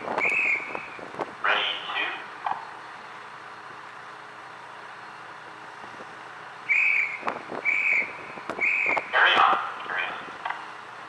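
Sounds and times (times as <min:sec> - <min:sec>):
wind: 0:00.0 - 0:11.0
short high whistle blasts: 0:06.7 - 0:09.0.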